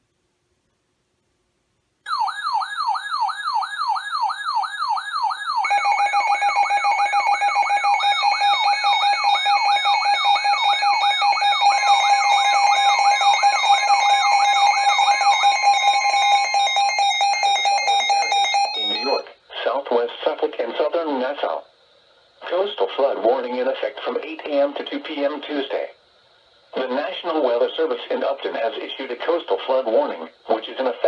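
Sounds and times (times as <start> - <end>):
warbling siren-like alarm: 2.1 - 19.3
steady and pulsing beeps: 2.1 - 19.4.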